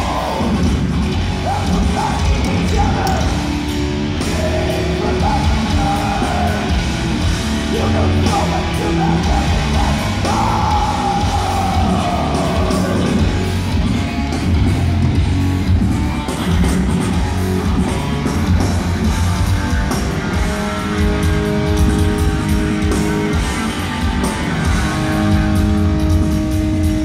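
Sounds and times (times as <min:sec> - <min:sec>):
harsh shouted vocal: 0:00.0 - 0:03.5, 0:04.2 - 0:06.8, 0:07.5 - 0:13.4
bass guitar: 0:00.0 - 0:27.0
distorted electric guitars: 0:00.0 - 0:27.0.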